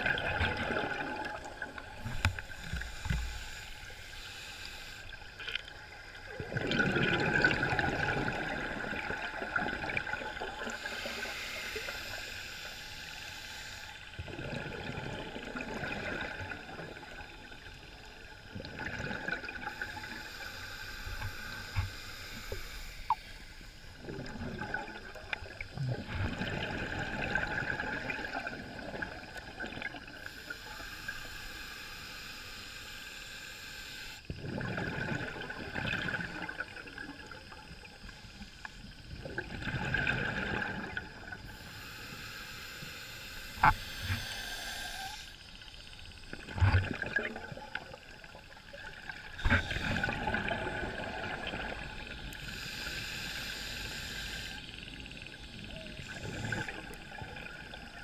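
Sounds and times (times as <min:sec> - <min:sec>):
exhaled air bubbling: 0:00.0 - 0:04.0, 0:05.0 - 0:12.7, 0:14.1 - 0:30.9, 0:34.2 - 0:42.0, 0:43.5 - 0:58.0
diver breathing through regulator: 0:02.0 - 0:05.3, 0:10.7 - 0:14.2, 0:19.6 - 0:23.8, 0:30.2 - 0:34.3, 0:41.4 - 0:45.6, 0:52.2 - 0:57.2.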